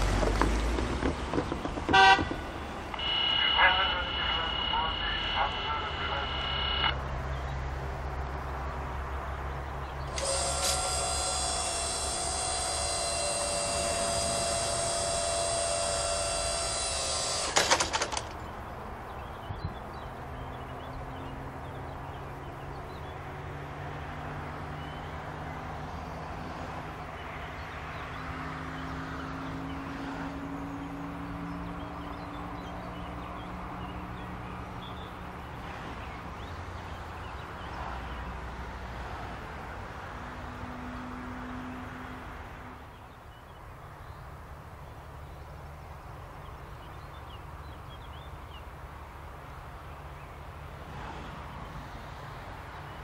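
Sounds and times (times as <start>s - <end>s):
outdoor rumble: 0.0s - 3.0s, 3.6s - 20.0s
machine whine: 10.1s - 18.3s
loud clunks and rattles: 11.8s - 18.4s.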